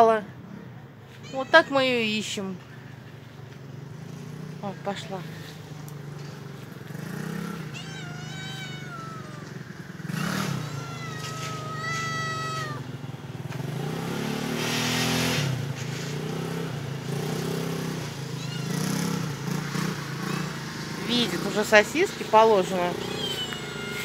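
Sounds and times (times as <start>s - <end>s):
cat meowing: 1.2s - 2.2s, 7.5s - 9.7s, 10.3s - 12.9s, 18.3s - 19.3s, 22.7s - 24.0s.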